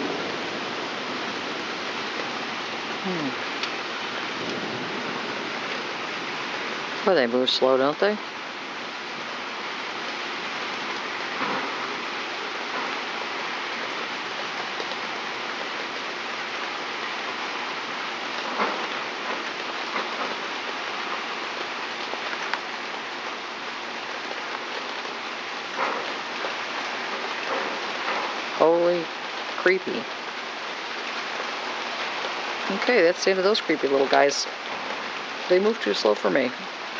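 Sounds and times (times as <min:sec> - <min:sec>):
rain pattering on surfaces: 0:00.0 - 0:36.9.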